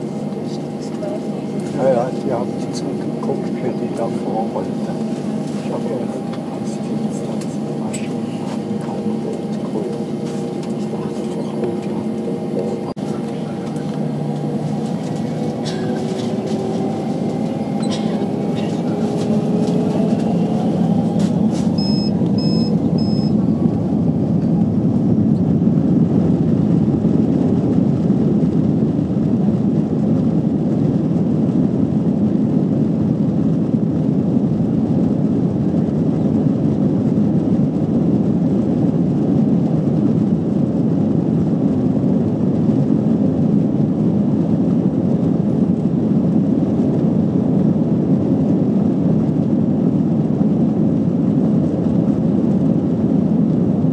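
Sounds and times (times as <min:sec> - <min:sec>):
airframe rumbling on taxiway: 0:00.0 - 0:53.9
jet engines at taxi power: 0:00.0 - 0:53.9
short high beeps: 0:21.8 - 0:23.4.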